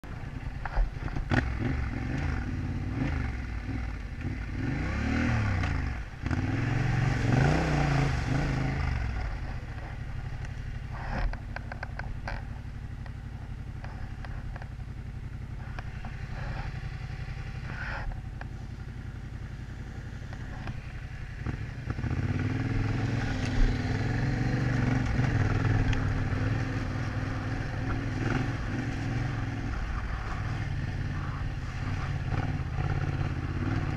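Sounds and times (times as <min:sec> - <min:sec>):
motorcycle engine revving: 0:00.0 - 0:33.9
clatters and knocks on dirt track: 0:09.2 - 0:14.8.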